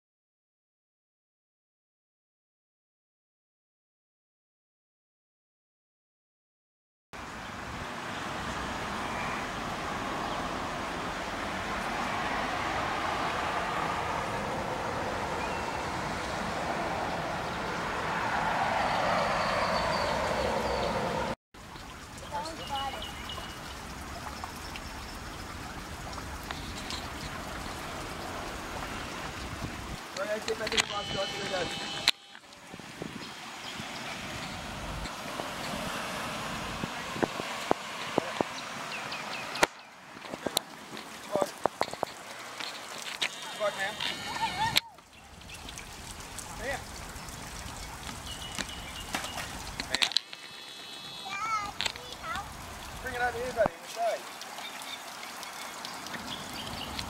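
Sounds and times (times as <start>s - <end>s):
cars driving around roundabout: 7.2s - 53.6s
road traffic hiss: 7.2s - 57.0s.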